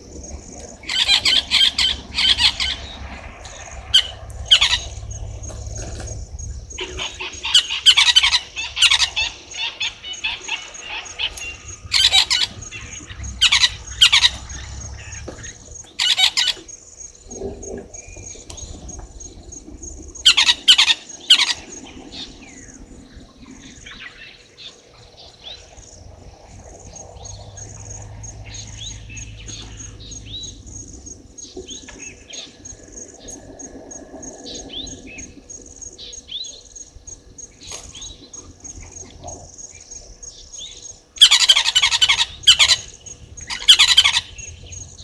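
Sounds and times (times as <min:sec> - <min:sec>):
high-pitched insect trill: 0:00.0 - 0:45.0
loud harsh bird calls: 0:00.8 - 0:18.2, 0:20.2 - 0:22.8, 0:40.6 - 0:45.0.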